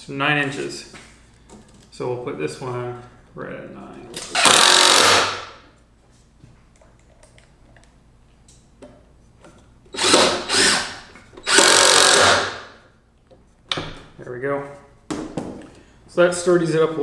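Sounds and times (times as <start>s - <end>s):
cordless drill driving screws: 4.3s - 5.4s, 9.9s - 12.7s.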